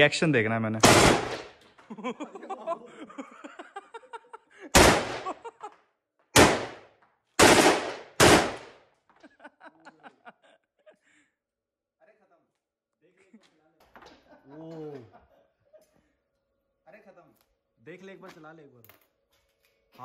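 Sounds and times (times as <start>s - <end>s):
submachine gun shots: 0.8s - 1.6s, 4.8s - 5.3s, 6.4s - 6.8s, 7.4s - 8.8s.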